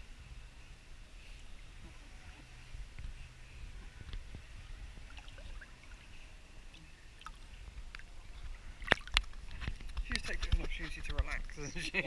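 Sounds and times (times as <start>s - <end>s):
water lapping and sloshing: 3.7s - 12.0s.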